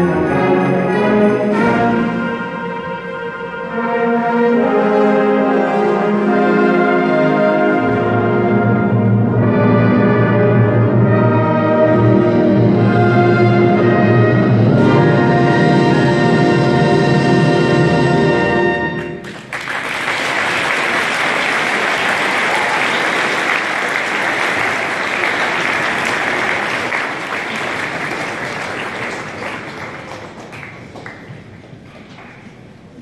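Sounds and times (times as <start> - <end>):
audience applauding: 19.2 - 32.8.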